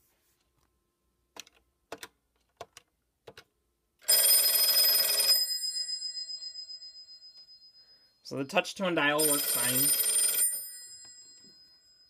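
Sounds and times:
telephone bell ringing: 0:04.1 - 0:12.0.

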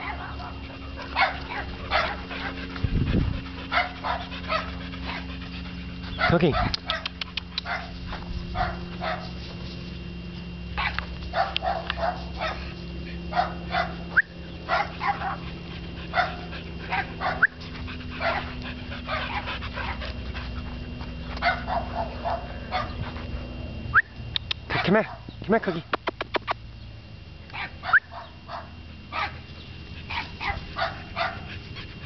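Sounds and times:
dog barking and yipping: 0:00.0 - 0:02.7, 0:03.6 - 0:05.4, 0:06.0 - 0:09.4, 0:10.7 - 0:23.3, 0:27.5 - 0:32.0
steady low hum: 0:00.0 - 0:32.0.

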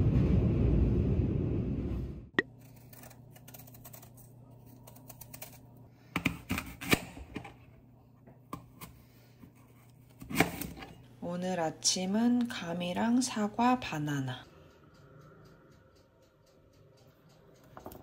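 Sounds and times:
low rumbling noise: 0:00.0 - 0:02.4
knife scraping and clicking: 0:02.4 - 0:05.6.

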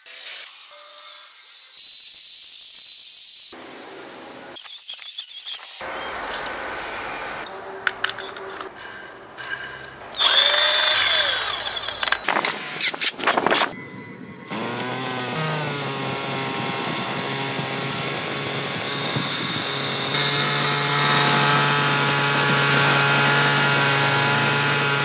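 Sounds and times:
metal parts clicking and knocking: 0:07.8 - 0:09.0
electric drill running: 0:10.2 - 0:12.9, 0:14.5 - 0:25.0.

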